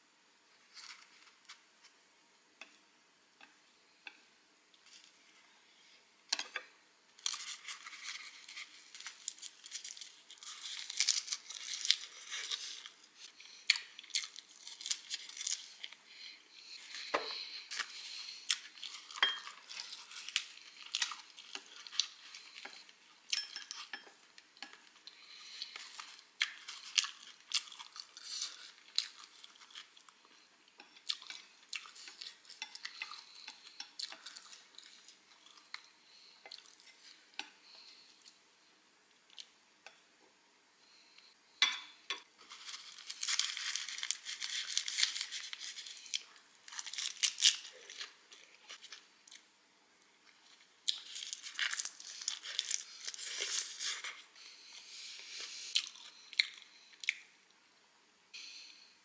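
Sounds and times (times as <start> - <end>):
chewing crisp seaweed: 7.2 - 16.0, 24.6 - 38.4, 42.4 - 49.5, 50.3 - 54.3, 55.2 - 57.3.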